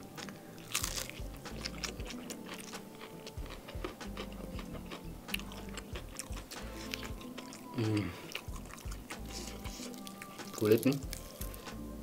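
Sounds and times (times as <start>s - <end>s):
person chewing crunchy food: 0.0s - 11.8s.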